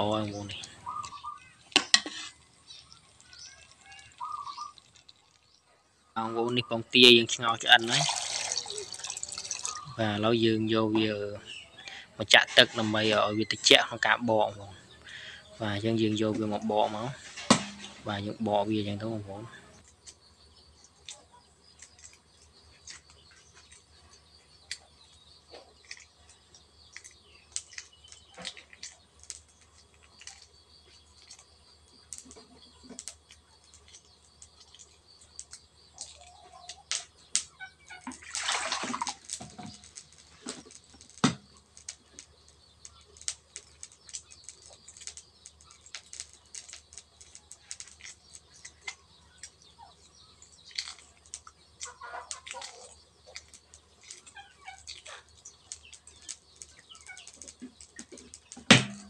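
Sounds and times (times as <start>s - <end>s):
eggshell cracking: 0.0s - 5.6s, 7.7s - 10.2s, 24.6s - 59.0s.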